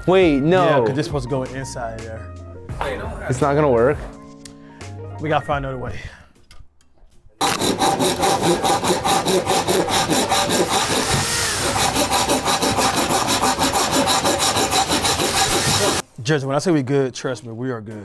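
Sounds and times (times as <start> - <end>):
hand saw cutting plastic pipe: 7.4 - 16.0.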